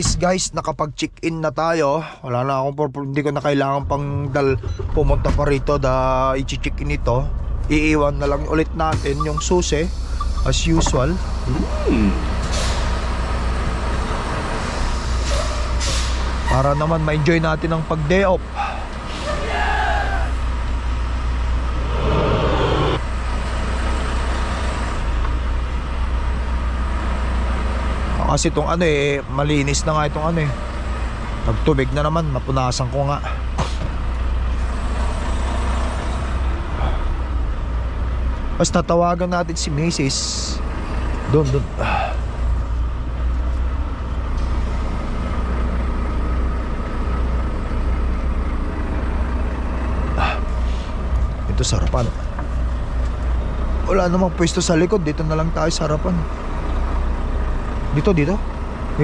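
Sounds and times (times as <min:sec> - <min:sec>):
truck engine droning: 0:00.0 - 0:59.0
short rushing noise: 0:21.6 - 0:23.1.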